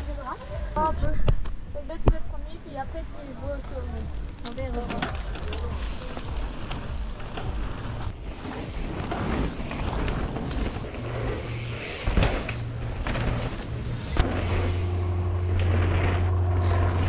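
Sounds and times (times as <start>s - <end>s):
bike landing thump: 11.9s - 14.6s.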